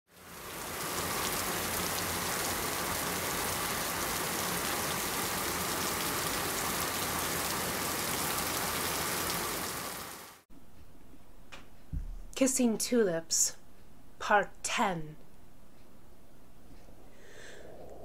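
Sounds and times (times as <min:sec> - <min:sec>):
steady rain: 0:00.1 - 0:10.4.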